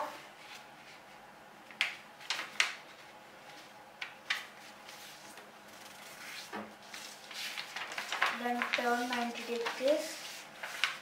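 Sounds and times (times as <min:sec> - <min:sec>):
paper crinkling while folded: 0:02.2 - 0:11.0.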